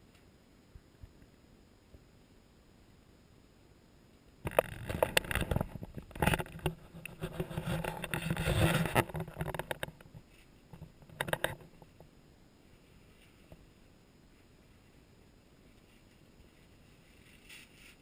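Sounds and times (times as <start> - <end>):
sharp knocks and clicks: 4.4 - 12.0
rustling and crinkling: 4.4 - 18.0.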